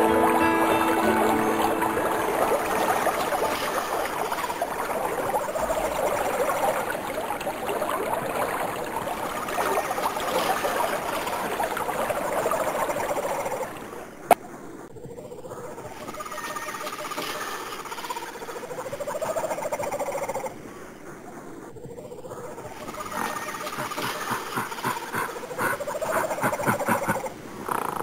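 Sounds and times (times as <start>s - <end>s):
running water: 0.0s - 14.2s, 22.9s - 27.3s
chirping animal calls: 23.1s - 28.0s.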